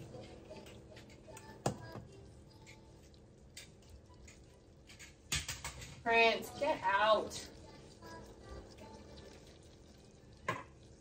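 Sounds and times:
kitchen items clicking and knocking: 4.3 - 6.1.

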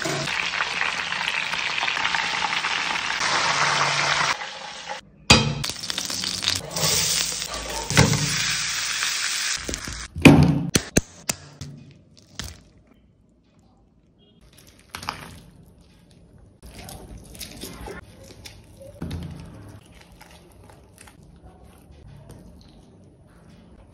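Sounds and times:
hot oil sizzling: 0.0 - 10.1.

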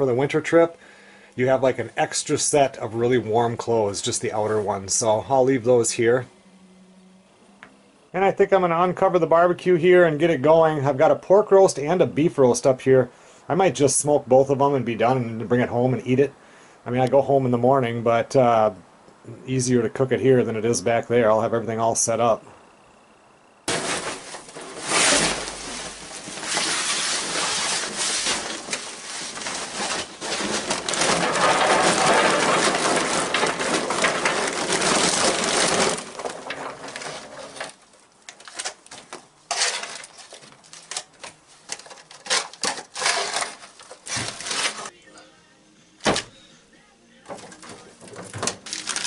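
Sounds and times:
loud rustling and scraping: 23.7 - 44.9, 47.3 - 49.0.

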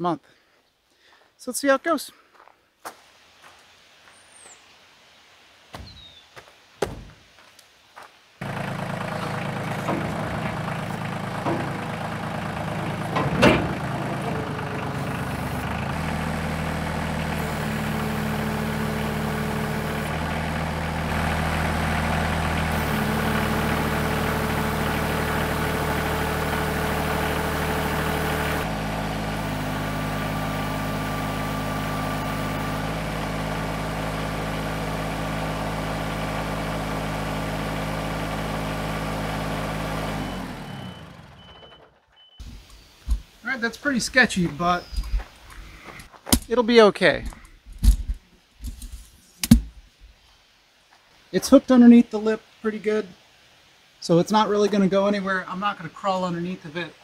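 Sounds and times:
tractor engine under load: 8.4 - 49.8.

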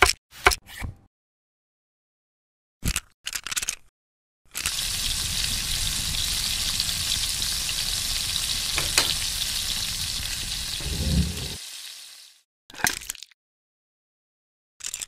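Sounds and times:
food sizzling in hot oil: 4.6 - 12.4.

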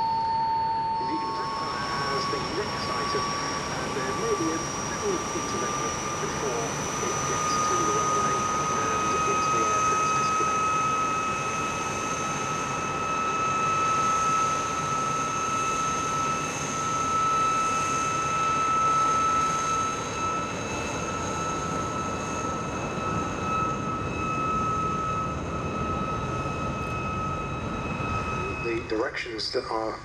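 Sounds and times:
jet engine high whine: 0.0 - 30.0
rushing jet noise: 1.1 - 10.8.

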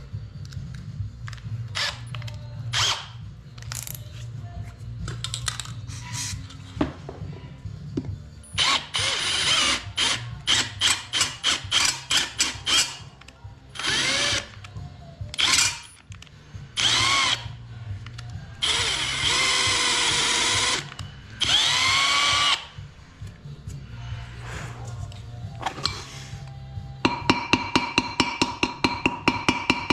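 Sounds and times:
cordless drill boring into metal: 16.8 - 17.4, 18.6 - 22.7.

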